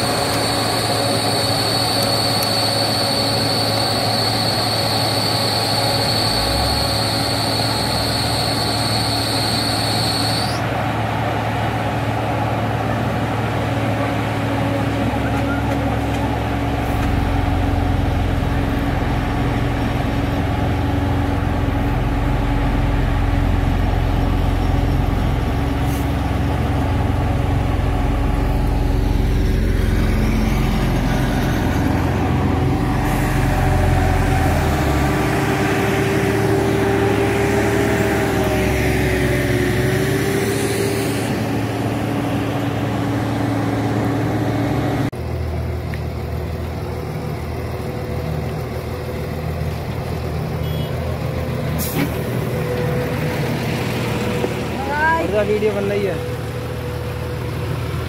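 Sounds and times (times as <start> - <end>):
diesel engines of heavy machinery: 0.0 - 58.0
higher engine tone rising and falling: 16.4 - 45.2.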